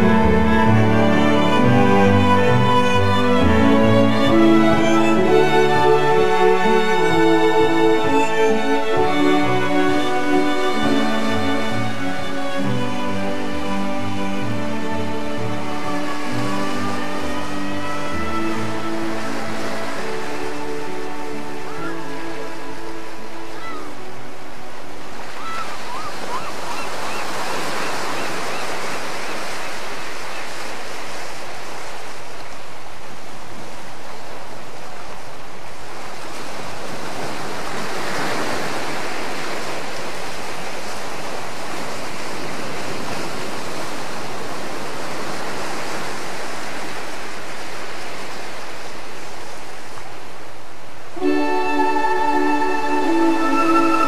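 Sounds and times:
music with sustained notes: 0:00.0 - 0:26.2, 0:51.0 - 0:54.0
rushing noise like waves: 0:00.0 - 0:54.0.

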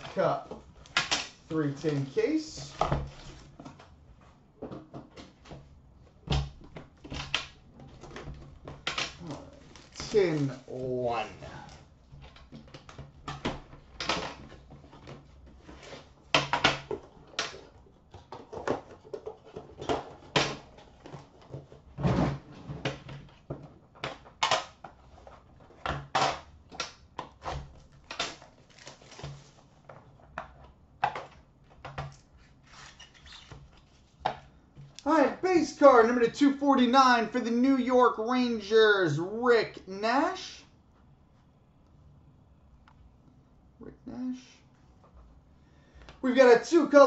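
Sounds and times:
box unwrapping rustles and scrapes: 0:32.4 - 0:34.2.

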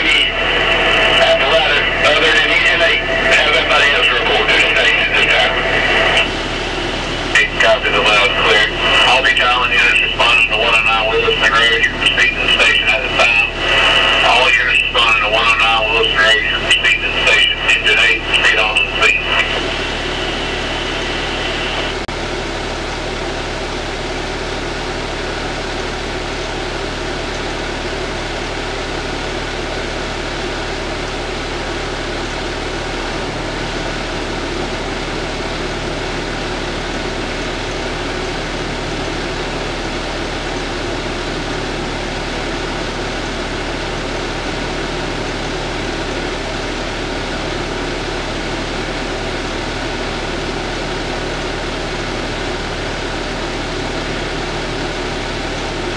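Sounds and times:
engine and fan idling hum: 0:00.0 - 0:55.9.

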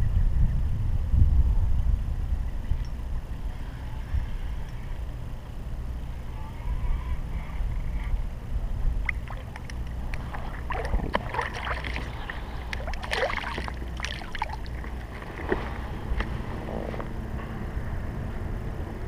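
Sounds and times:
fish splashing at water surface: 0:09.0 - 0:16.2.

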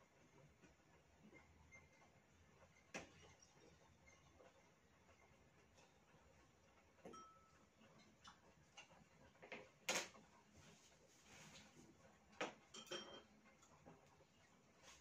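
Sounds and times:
chopsticks clinking on metal dishes: 0:12.7 - 0:13.7.

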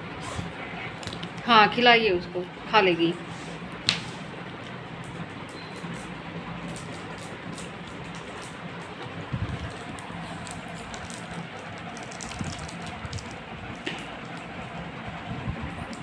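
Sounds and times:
plastic wrapper crinkling: 0:06.6 - 0:14.4.

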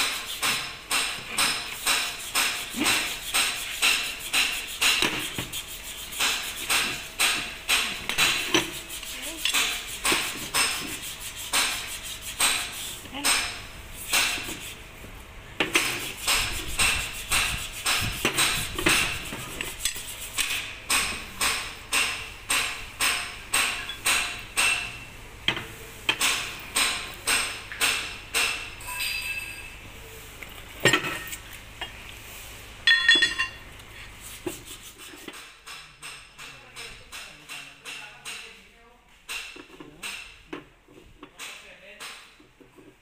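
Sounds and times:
hammer blows on metal: 0:15.7 - 0:25.0
metal clanks: 0:20.4 - 0:25.0, 0:32.9 - 0:33.6.

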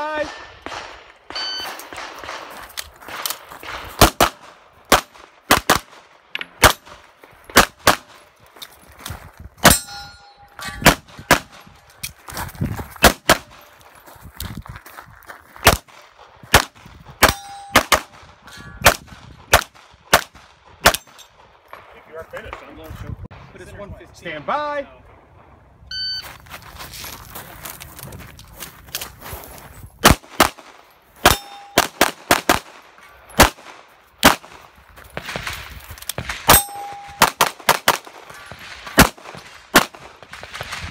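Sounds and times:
steel target ringing: 0:01.3 - 0:01.9, 0:09.6 - 0:10.9, 0:17.2 - 0:17.9, 0:31.2 - 0:31.9, 0:36.5 - 0:37.4.

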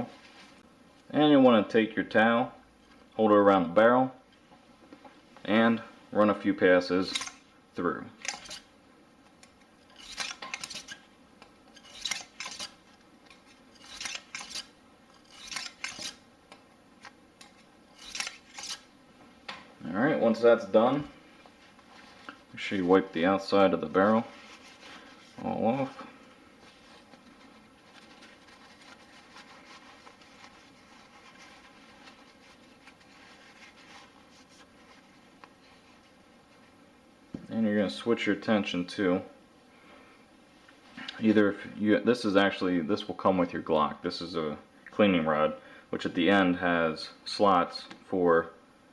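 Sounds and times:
paper towel rustling and crinkling: 0:00.0 - 0:00.7, 0:20.0 - 0:36.8
wire brush scraping in gun barrel: 0:07.0 - 0:07.4, 0:08.2 - 0:08.7, 0:09.8 - 0:11.1, 0:11.7 - 0:16.2, 0:17.4 - 0:18.9.

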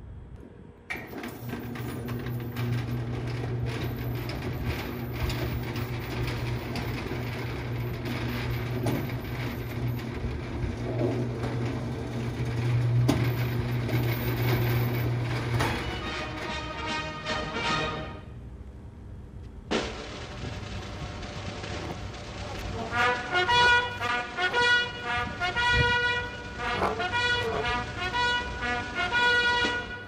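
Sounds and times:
metal slats rattling: 0:00.9 - 0:16.4
shutter door motor hum: 0:00.9 - 0:16.6.

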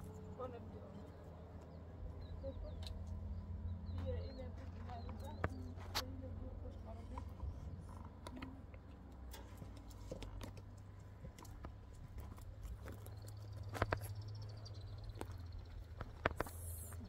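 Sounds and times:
low steady rumble: 0:00.0 - 0:17.0
light clicks and ticks: 0:07.0 - 0:17.0.

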